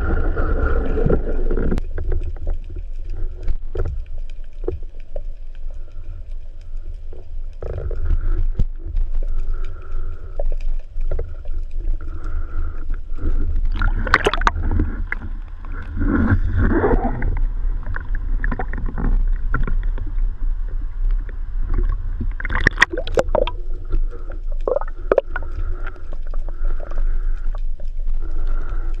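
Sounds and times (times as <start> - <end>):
low rumble of moving water: 0.0 - 29.0
water sloshing: 13.6 - 27.4.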